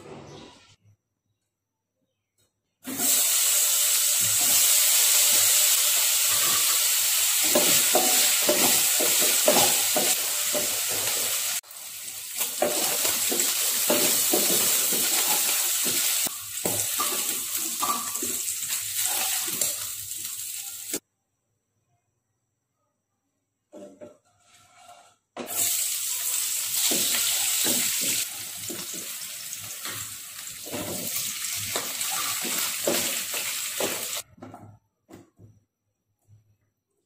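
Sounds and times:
food sizzling in hot oil: 2.9s - 21.0s, 25.5s - 34.2s.

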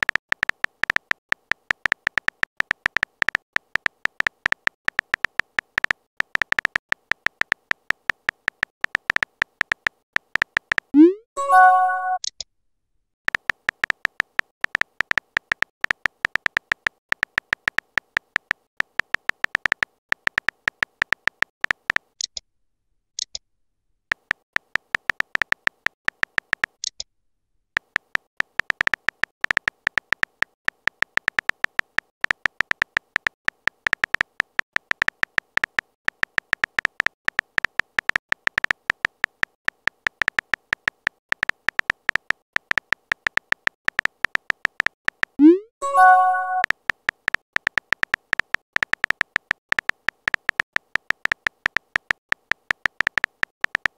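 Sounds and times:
phone keyboard tapping clicks: 0.0s - 12.4s, 13.3s - 22.4s, 24.1s - 27.0s, 27.8s - 53.9s.

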